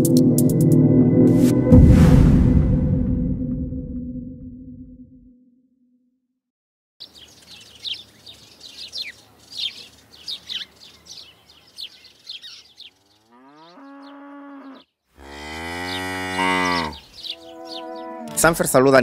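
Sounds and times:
birds chirping: 7.0 - 19.0
cow mooing: 13.0 - 18.7.

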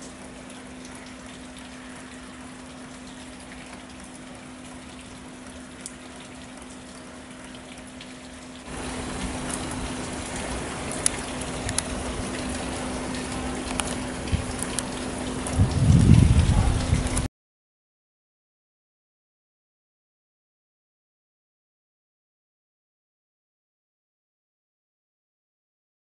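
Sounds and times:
rain hissing: 0.0 - 17.3
water drips: 0.0 - 17.3.

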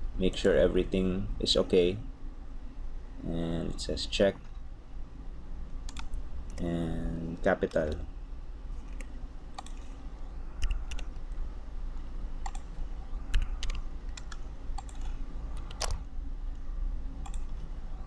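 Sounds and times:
low steady hum: 0.0 - 18.0
keyboard keystrokes: 5.9 - 6.6, 13.3 - 16.0.

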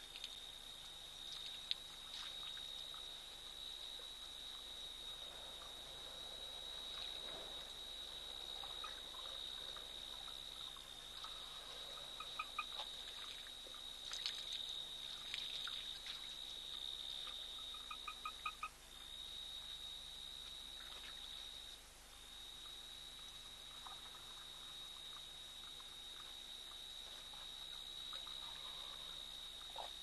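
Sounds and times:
water splashing and trickling: 1.2 - 3.4, 12.6 - 16.8.

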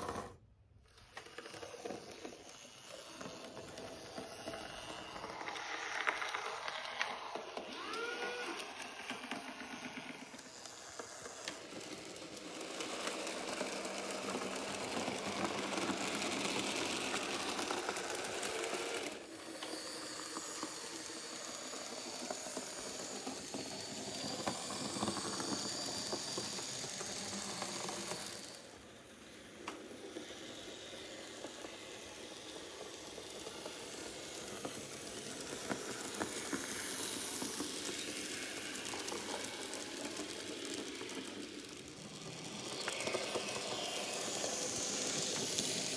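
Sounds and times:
model train motor whir: 0.0 - 45.9
wheels rattling on track: 9.1 - 28.9.

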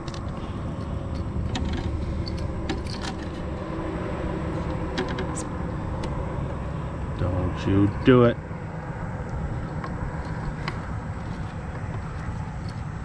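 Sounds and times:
small clicks and knocks: 0.0 - 3.5, 4.5 - 6.2, 9.7 - 12.9
steady low rumble: 0.0 - 13.0.

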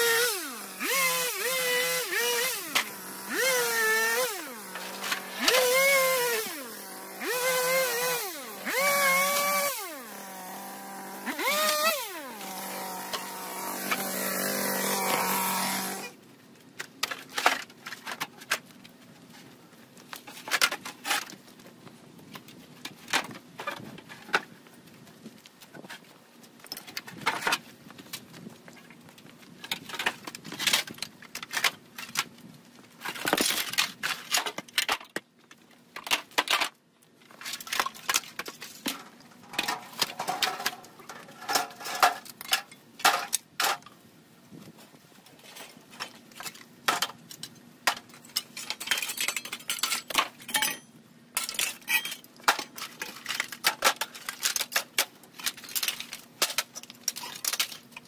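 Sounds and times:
rubble clattering into wheelbarrow: 36.0 - 43.9.

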